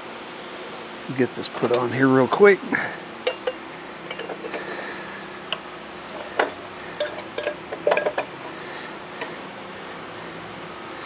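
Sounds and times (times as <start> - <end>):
steady low hum: 0.0 - 11.0
metallic clicks and knocks: 5.5 - 8.3.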